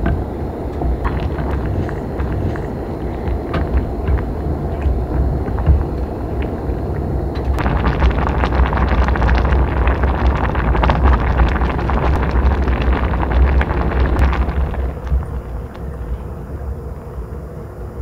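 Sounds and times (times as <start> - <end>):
wind rumbling on microphone: 0.0 - 18.0.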